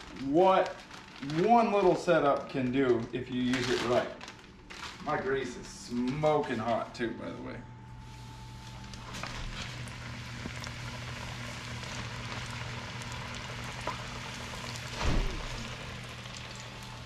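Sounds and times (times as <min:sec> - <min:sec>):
fish frying in grease: 0:08.9 - 0:17.0.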